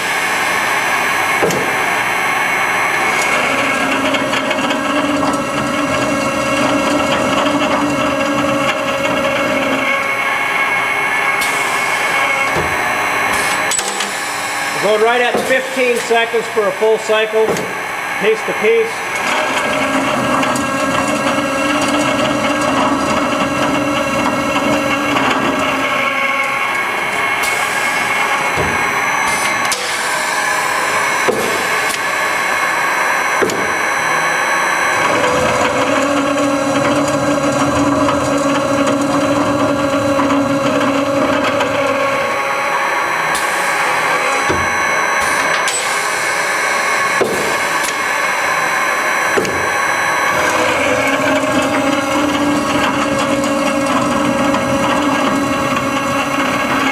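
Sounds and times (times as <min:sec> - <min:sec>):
cold saw cutting rod: 0:11.2 - 0:38.0, 0:40.4 - 0:56.9.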